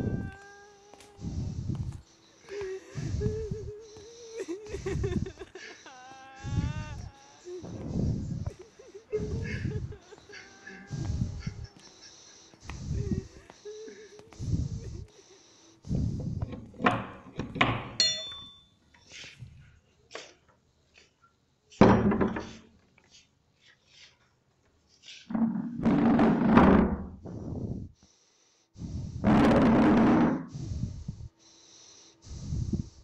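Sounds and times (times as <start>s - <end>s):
irregular thuds and knocks: 25.3s - 27.4s.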